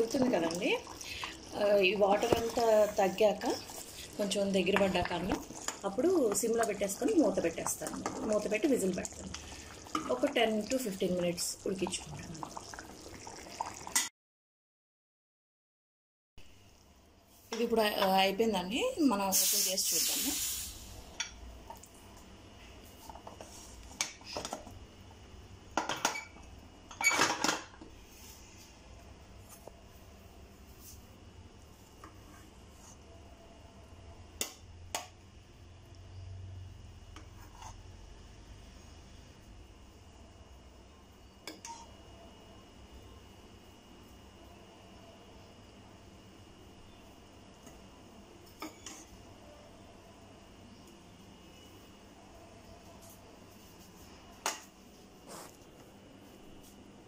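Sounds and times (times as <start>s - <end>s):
steady hiss: 19.3s - 21.1s.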